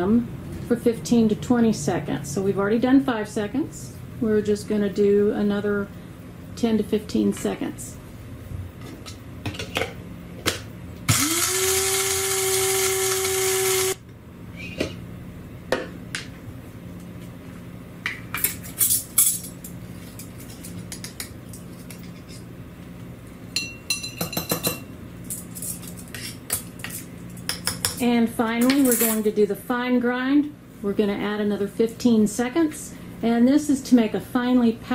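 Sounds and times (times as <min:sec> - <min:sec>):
coffee grinder motor: 0:11.1 - 0:14.0
metal spoon clinking on cup: 0:23.6 - 0:24.9.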